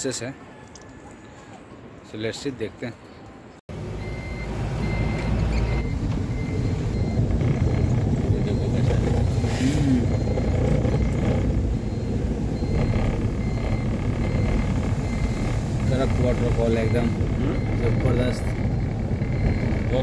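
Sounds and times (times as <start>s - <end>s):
engine and road rumble: 0.0s - 20.0s
electronic warning beep: 4.0s - 20.0s.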